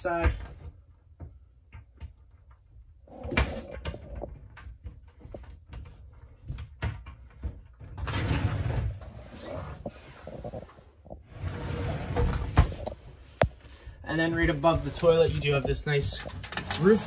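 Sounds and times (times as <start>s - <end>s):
shower door sliding: 7.8s - 10.4s, 11.3s - 12.9s, 14.2s - 17.0s.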